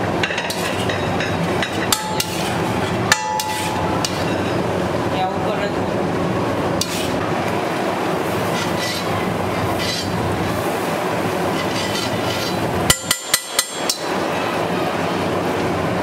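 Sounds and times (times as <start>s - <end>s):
spatula clinking on griddle: 0.2s - 4.6s, 11.5s - 14.2s
butter sizzling on a griddle: 6.8s - 12.9s.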